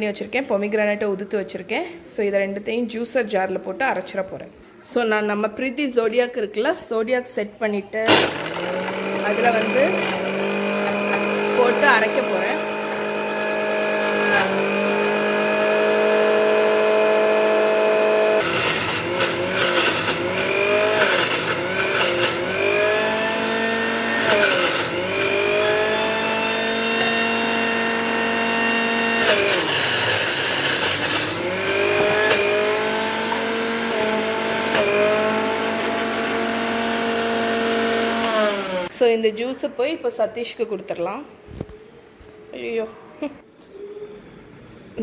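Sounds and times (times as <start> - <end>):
mixer grinder motor whining: 8.1 - 38.9.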